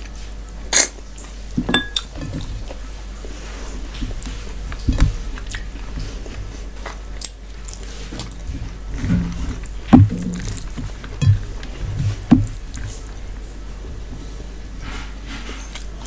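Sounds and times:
wet squishing of food mixed by hand: 0:00.0 - 0:16.0
chewing: 0:02.0 - 0:13.6
thud: 0:09.0 - 0:12.8.

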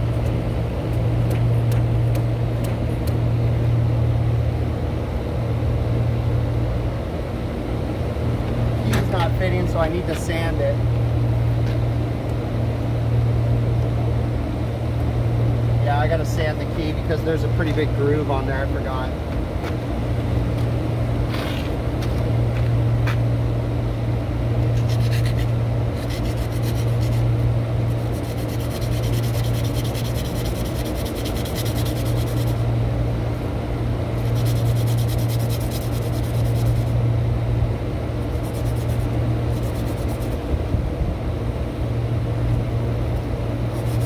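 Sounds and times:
steady low hum: 0:00.0 - 0:44.0
metal sanded on abrasive cloth: 0:24.7 - 0:32.7, 0:34.2 - 0:37.0, 0:38.2 - 0:40.4, 0:43.7 - 0:44.0.

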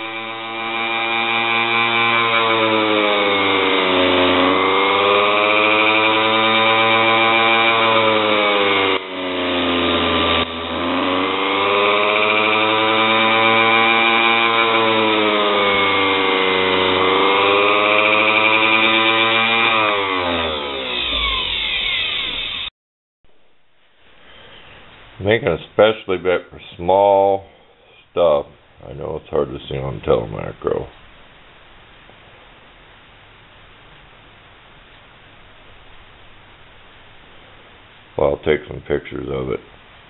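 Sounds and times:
bench grinder whining: 0:00.0 - 0:22.7.

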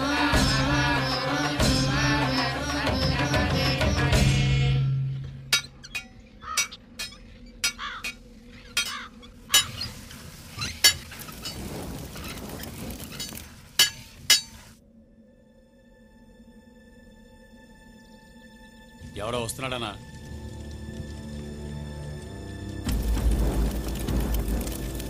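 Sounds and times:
embers crackling and popping: 0:08.0 - 0:14.8, 0:19.2 - 0:25.0.

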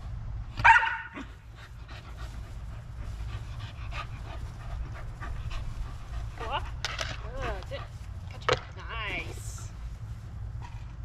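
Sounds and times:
dog panting: 0:01.2 - 0:08.4.

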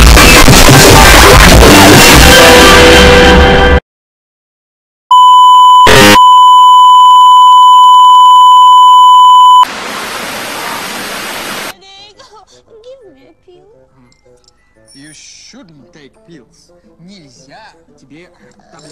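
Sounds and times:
burst of noise: 0:00.0 - 0:03.4
music: 0:00.0 - 0:03.8, 0:12.0 - 0:18.9
television test-tone beep: 0:05.1 - 0:09.7
static hiss: 0:09.7 - 0:11.7.

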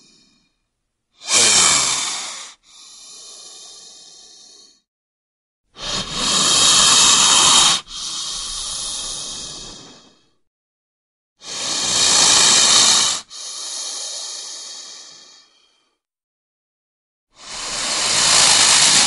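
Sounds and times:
snake hissing: 0:01.2 - 0:04.9, 0:05.8 - 0:10.4, 0:11.4 - 0:15.9, 0:17.4 - 0:19.0.

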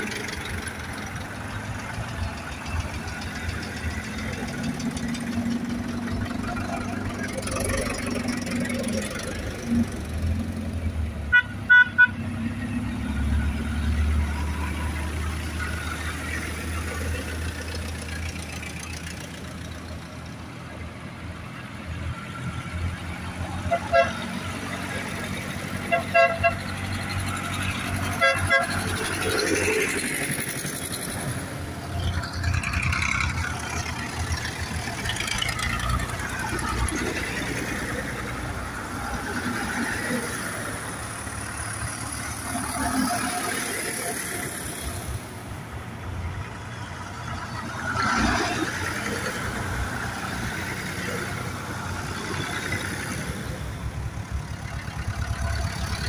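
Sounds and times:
tractor engines running: 0:00.0 - 0:56.0
horns tooting: 0:11.3 - 0:13.2, 0:23.4 - 0:29.8.

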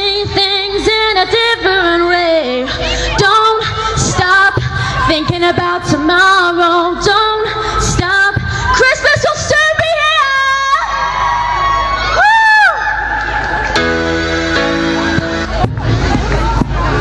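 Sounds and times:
woman singing into microphone: 0:00.0 - 0:10.8.

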